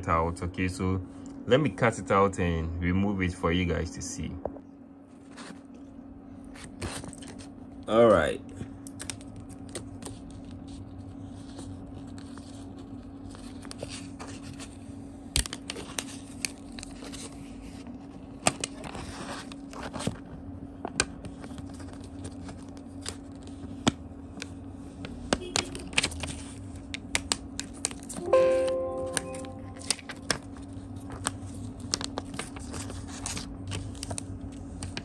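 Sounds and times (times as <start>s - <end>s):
sticker film peeling and crackling: 8.8s - 17.4s, 25.2s - 28.2s, 29.3s - 35.0s.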